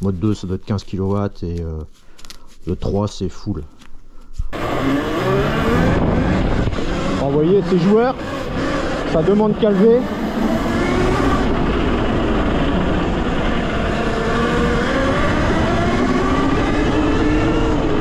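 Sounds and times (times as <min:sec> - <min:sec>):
steady rushing noise: 0:04.5 - 0:18.0
electric motor whining: 0:04.6 - 0:18.0.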